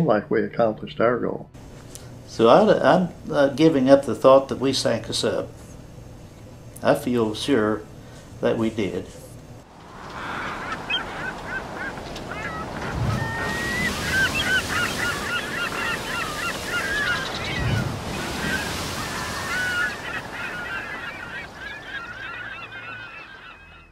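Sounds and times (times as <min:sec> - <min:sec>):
steady surf-like wash: 0:09.6 - 0:23.5
flock of birds calling: 0:09.7 - 0:23.9.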